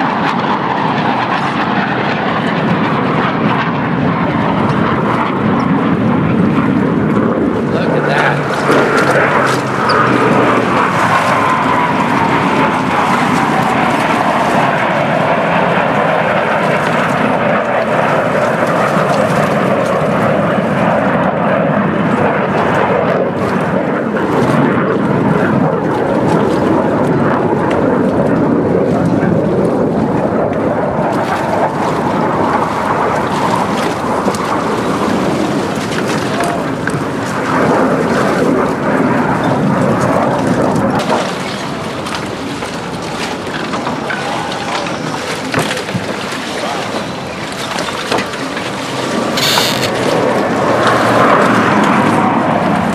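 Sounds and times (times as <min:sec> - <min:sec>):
jet rumble: 0:00.0 - 0:52.9
jet whine falling in pitch: 0:49.2 - 0:50.5.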